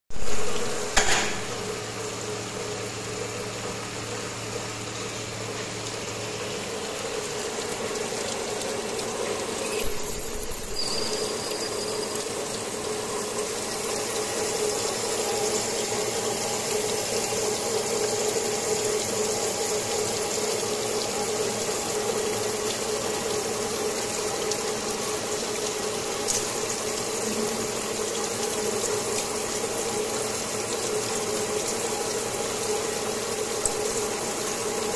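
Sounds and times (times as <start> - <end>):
loud shrill burst: 9.6 - 12.3.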